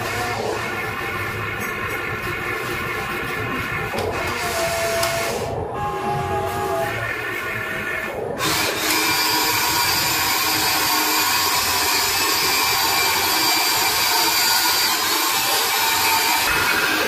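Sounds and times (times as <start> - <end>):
toy excavator electric motors whining: 3.5 - 17.0.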